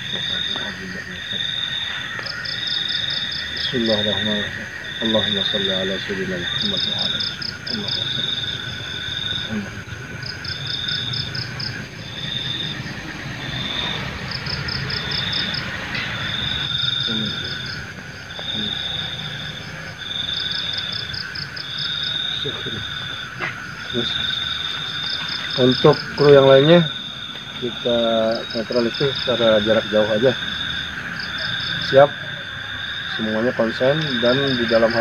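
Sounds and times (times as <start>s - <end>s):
insects calling with pulsed trill: 0.0s - 35.0s
low insect drone: 0.0s - 35.0s.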